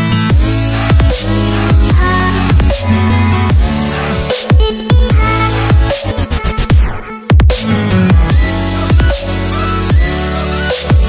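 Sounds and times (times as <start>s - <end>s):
deep kick drums: 0.3s - 3.9s, 4.5s - 6.0s, 7.3s - 9.3s
sustained synth chords: 0.3s - 4.4s.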